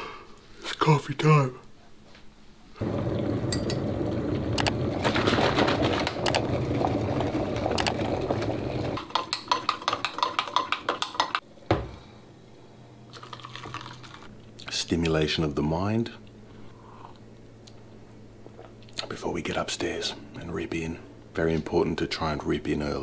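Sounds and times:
electric kettle boiling: 0:02.8 - 0:11.8.

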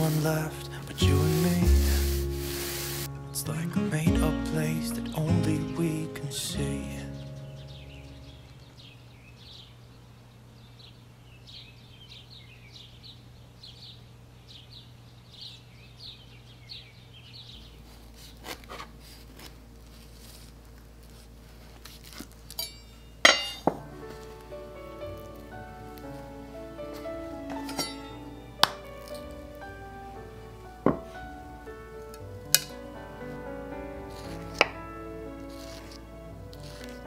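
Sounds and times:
soft background music: 0:00.0 - 0:08.9, 0:23.6 - 0:37.0.

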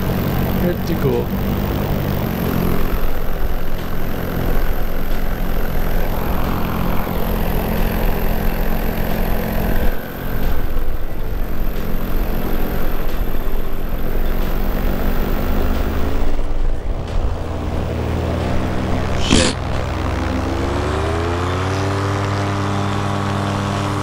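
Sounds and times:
paramotor engine running: 0:00.0 - 0:24.0.

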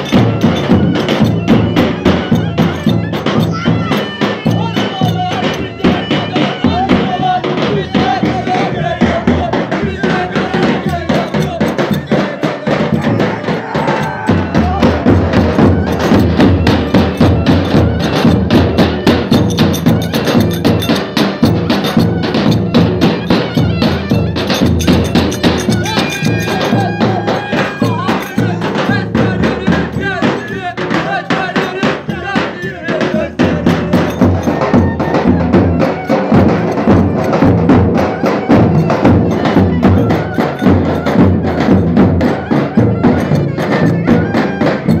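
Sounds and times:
bass drums beaten in fast rhythm: 0:00.0 - 0:45.0.

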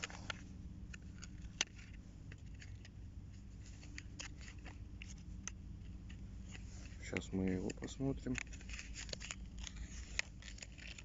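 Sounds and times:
plastic packaging clicks and crackles: 0:03.7 - 0:11.0.

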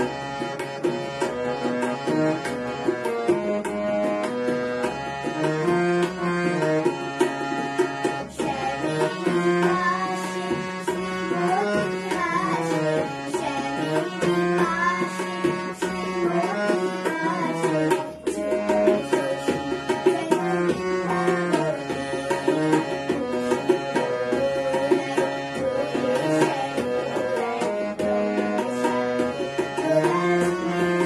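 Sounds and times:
harmonium melody: 0:00.0 - 0:31.0
tabla drumming: 0:00.0 - 0:31.0
girl singing: 0:08.0 - 0:31.0.

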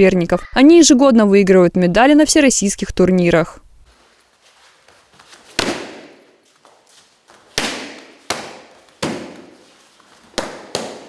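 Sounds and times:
kicks smacking kick paddles: 0:05.5 - 0:06.3, 0:07.5 - 0:09.6, 0:10.2 - 0:11.0.

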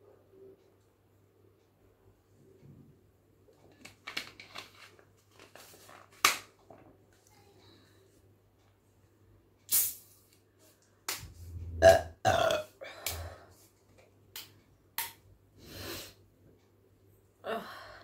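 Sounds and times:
woman burping loudly: 0:11.6 - 0:13.3.

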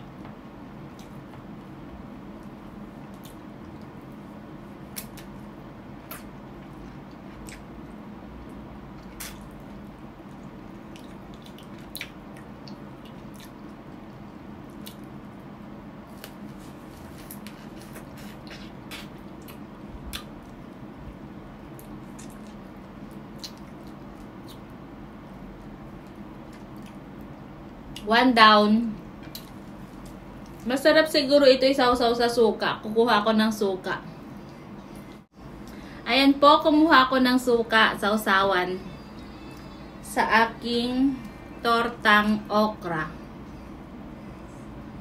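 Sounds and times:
steady low hum: 0:00.0 - 0:45.0
wet chewing and lip smacks: 0:06.0 - 0:08.0, 0:09.0 - 0:09.7, 0:10.4 - 0:15.1, 0:18.0 - 0:20.6, 0:21.7 - 0:24.7, 0:26.0 - 0:27.0.

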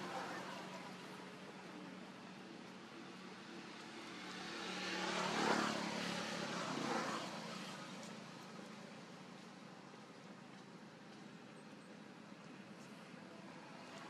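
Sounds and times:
motor vehicle passing by: 0:00.0 - 0:09.0.

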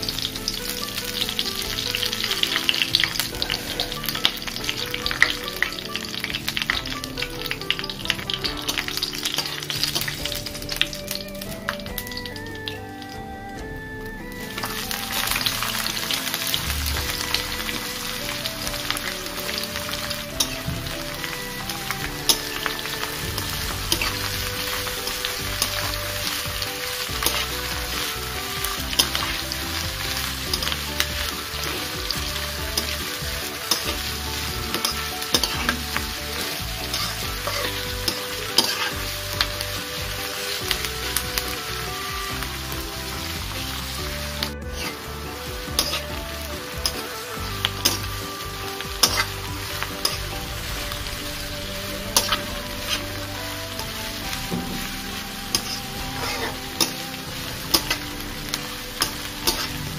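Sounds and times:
onions sizzling in hot oil: 0:00.0 - 0:13.1, 0:14.3 - 0:59.9
spatula scraping steel pan: 0:14.8 - 0:41.5, 0:43.5 - 0:59.9.

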